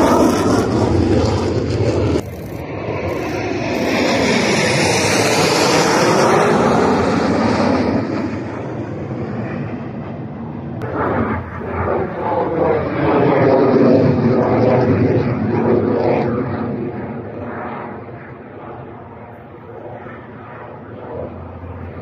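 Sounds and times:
jet engine roar: 0.0 - 22.0.

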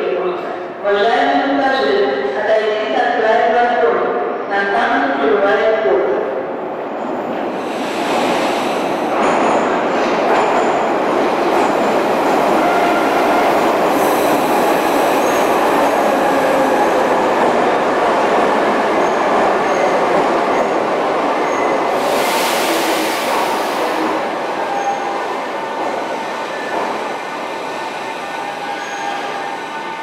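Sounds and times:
train rumbling on rails: 6.4 - 30.0
high squeals of train: 7.1 - 17.4, 19.0 - 30.0
air hiss: 22.0 - 24.1.

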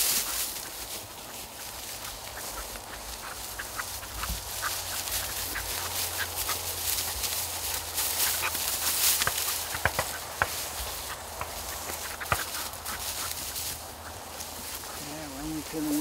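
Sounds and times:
footsteps crunching dry grass: 0.0 - 16.0.

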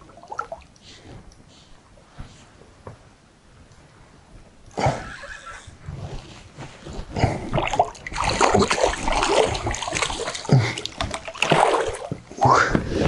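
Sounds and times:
fish splashing in water: 7.5 - 12.4.

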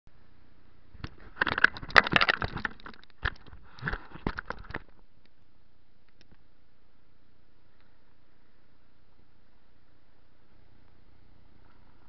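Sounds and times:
faint steady hiss: 0.1 - 12.0
camera rubbing against clothing: 1.1 - 5.0.

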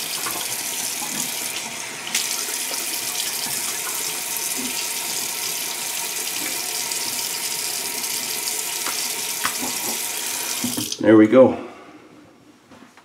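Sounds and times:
tap running into sink: 0.0 - 5.2, 8.8 - 11.0.

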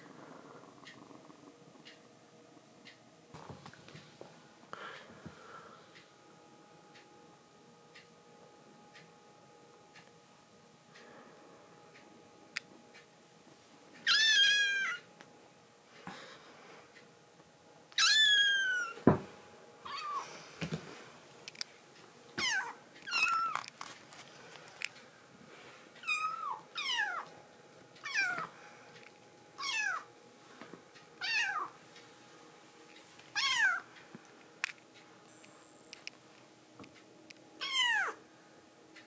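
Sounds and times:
kittens meowing: 14.1 - 15.0, 19.9 - 20.2, 33.4 - 33.8, 37.6 - 38.2.

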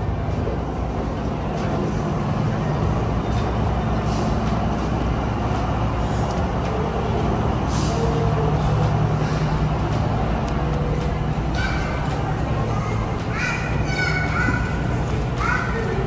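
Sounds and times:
heavy engine humming: 0.0 - 16.0
air hissing: 7.6 - 8.3.

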